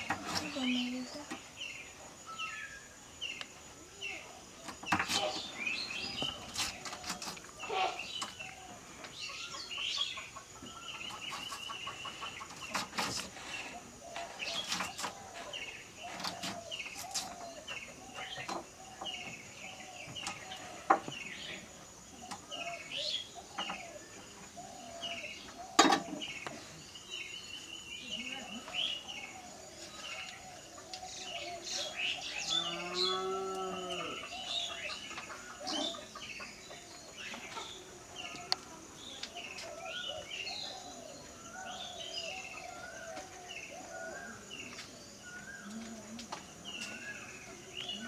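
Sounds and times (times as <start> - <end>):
small birds chirping: 0.0 - 48.0
chickens clucking: 4.6 - 22.8, 34.2 - 41.4.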